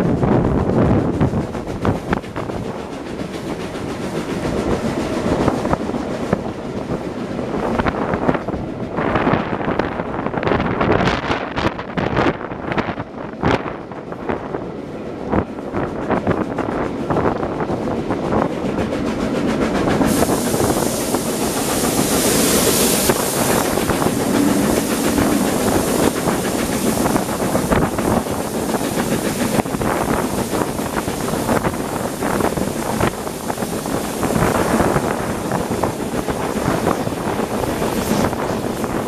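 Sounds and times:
steam locomotive exhaust beats: 0.0 - 39.0
wind rushing past: 16.8 - 39.0
steam hiss: 17.8 - 39.0.

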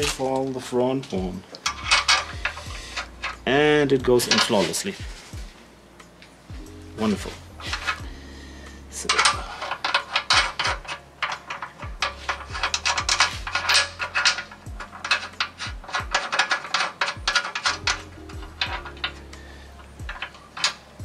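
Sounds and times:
metallic clicking and scraping: 0.0 - 21.0
music with bass beat: 1.2 - 4.4, 5.0 - 9.6, 11.8 - 16.2, 17.2 - 21.0.

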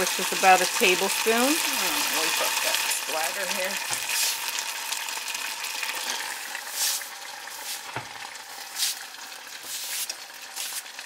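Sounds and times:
sauce sizzling and spattering: 0.0 - 11.0
cloth wiping stove: 6.7 - 11.0.

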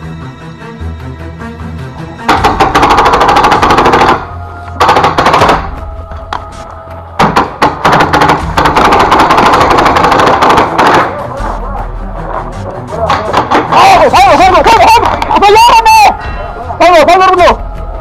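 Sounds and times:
background music: 0.0 - 18.0
paintball marker firing: 2.3 - 5.8, 7.2 - 11.2.

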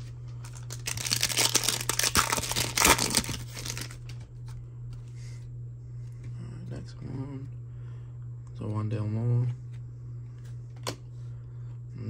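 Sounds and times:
foil wrapper crinkling and tearing: 0.4 - 4.1.

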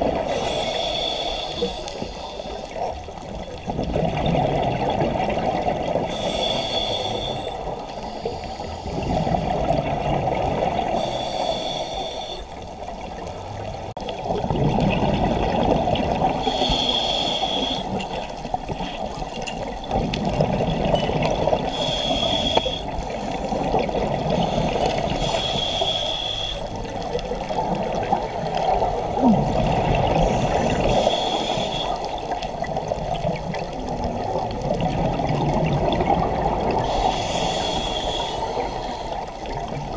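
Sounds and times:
hissing regulator inhalations: 0.3 - 2.8, 6.1 - 9.4, 11.0 - 12.6, 16.4 - 18.3, 21.6 - 23.6, 24.4 - 27.0, 30.2 - 32.5, 36.8 - 39.8
rumble of exhaled bubbles: 2.0 - 6.4, 8.4 - 11.3, 12.7 - 16.8, 17.9 - 25.8, 26.7 - 39.9.

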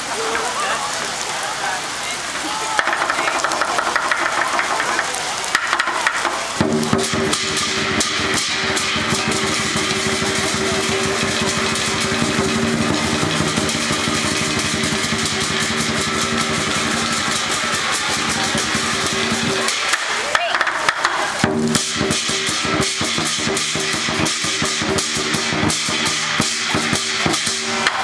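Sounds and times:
drum cymbals and gong beating: 2.8 - 28.0.

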